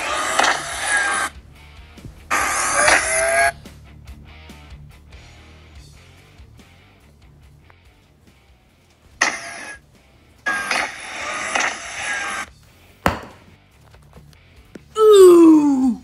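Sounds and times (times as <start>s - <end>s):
toy gun hissing: 0.0s - 1.3s, 2.3s - 3.5s, 9.2s - 9.8s, 10.5s - 12.5s
toy gun sharp crack: 2.8s - 3.1s, 9.2s - 9.8s, 10.5s - 12.4s.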